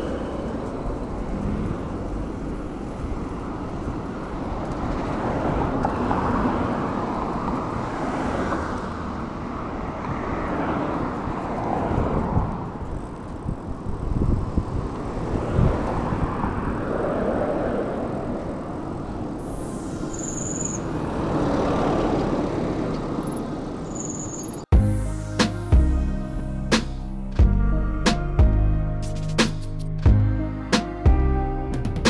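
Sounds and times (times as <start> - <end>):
cars going by: 0.0 - 25.7
rushing road noise: 0.0 - 32.0.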